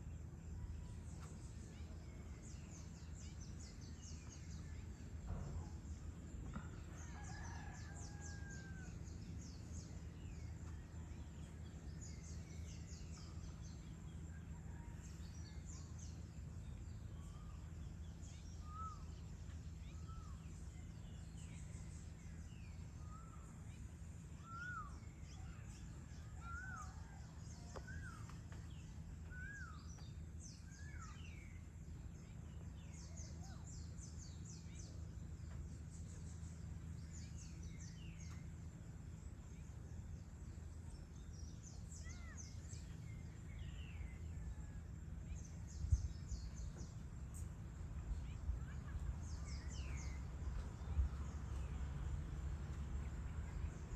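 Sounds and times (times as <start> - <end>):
low background rumble: 0.0 - 53.9.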